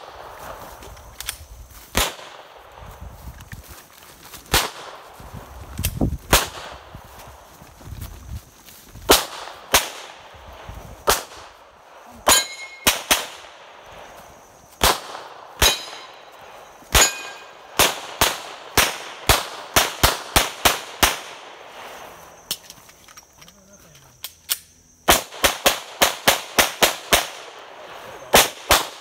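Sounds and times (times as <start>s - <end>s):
short metallic ring: 12.3s - 12.9s, 17.0s - 17.5s
handgun shots: 14.8s - 16.1s, 16.9s - 21.2s.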